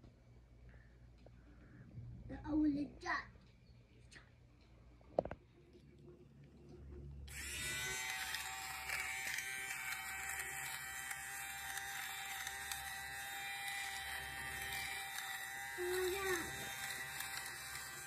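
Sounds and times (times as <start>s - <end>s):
fabric shaver motor whirring: 7.3s - 18.0s.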